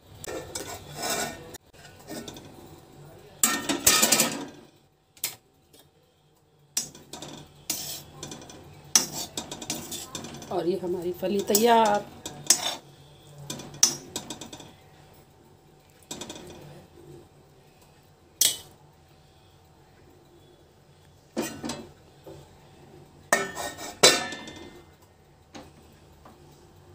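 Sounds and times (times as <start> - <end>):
metal spoon scraping a pan: 0.1 - 2.7, 6.8 - 15.1, 16.0 - 16.9, 18.4 - 18.8, 21.4 - 22.0, 23.3 - 24.9
steel plate clanking on pan: 3.4 - 4.6, 6.8 - 10.6, 11.4 - 12.8, 13.5 - 14.8, 18.4 - 18.7, 21.4 - 21.9, 23.3 - 24.9.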